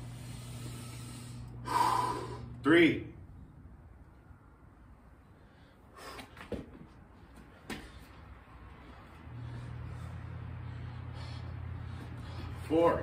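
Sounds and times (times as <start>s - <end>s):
thumps and scuffs on concrete: 6.0s - 8.2s
low hum: 8.3s - 12.7s.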